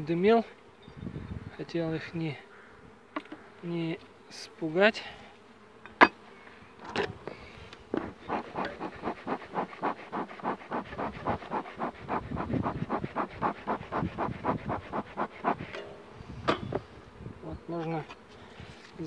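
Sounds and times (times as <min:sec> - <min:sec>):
honeybees buzzing: 0:05.4 - 0:19.0
rapid even pulsing: 0:08.0 - 0:15.8.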